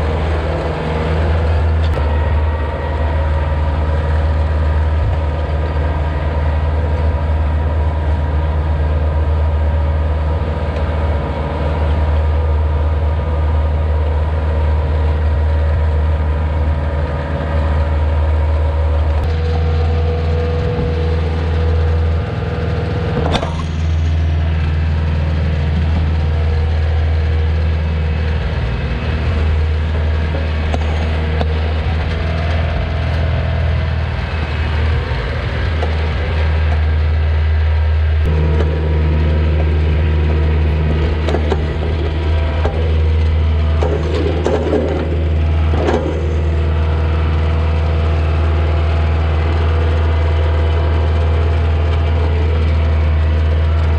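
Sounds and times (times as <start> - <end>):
tractor diesel engine under load: 0.0 - 53.9.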